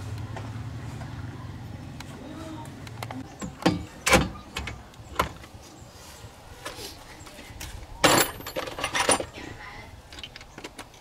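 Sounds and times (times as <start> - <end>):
metal tools clanking on car: 3.4 - 5.4, 8.0 - 9.5.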